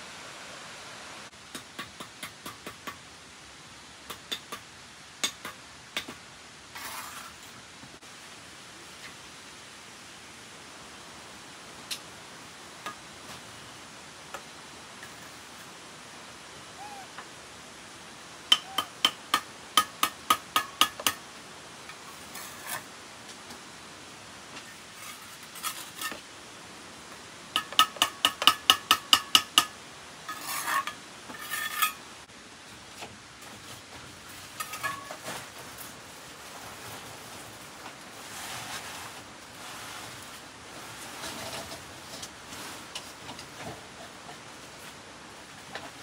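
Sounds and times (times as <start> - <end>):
rough scraping: 6.7 - 7.5, 22.1 - 22.9, 30.3 - 32.0, 34.3 - 43.0
metal tool tapping brick: 18.5 - 19.2.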